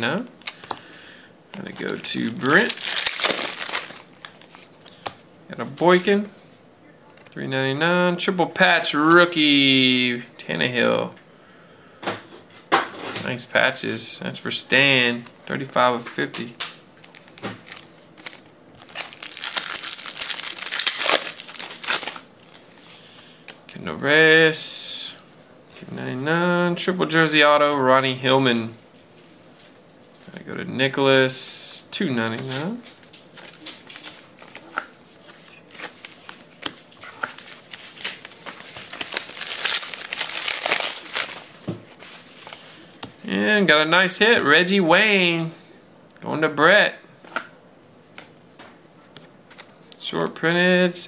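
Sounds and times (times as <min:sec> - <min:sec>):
plastic bag crinkling: 0:01.5 - 0:05.1, 0:17.0 - 0:22.7, 0:32.8 - 0:42.8.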